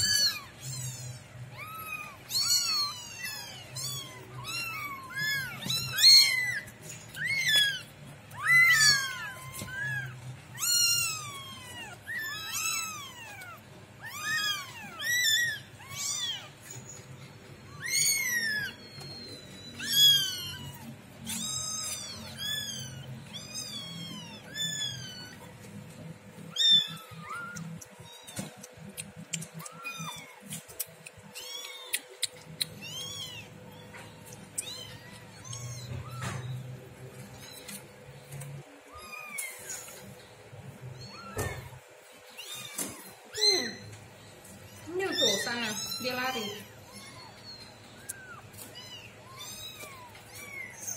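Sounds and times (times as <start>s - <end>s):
kittens meowing: 0.0s - 50.9s.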